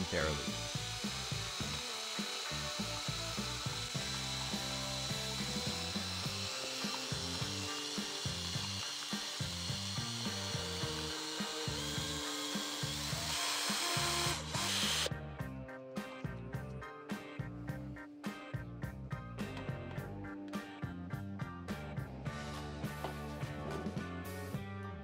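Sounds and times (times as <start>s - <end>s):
cordless drill motor whine: 0.0s - 15.1s.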